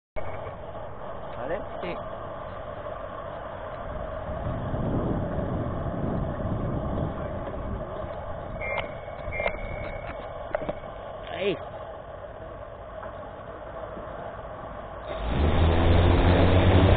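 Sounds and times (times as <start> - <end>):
low rushing noise: 0.2 - 16.9
drone motors whining: 15.1 - 16.9.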